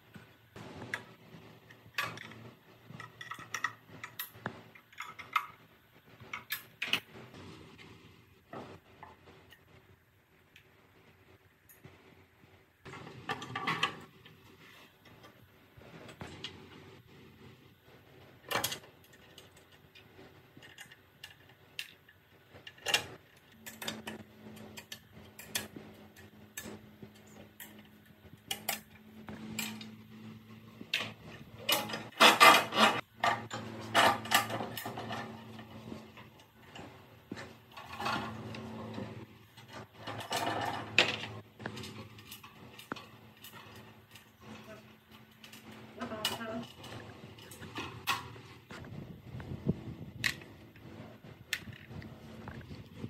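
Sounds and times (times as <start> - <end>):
metal parts clinking and scraping: 18.4 - 30.0, 30.9 - 48.8.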